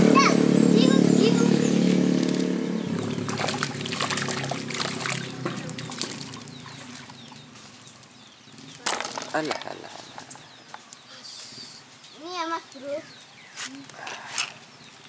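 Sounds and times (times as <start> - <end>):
engine hum: 0.0 - 10.8
fish splashing at water surface: 2.2 - 7.4.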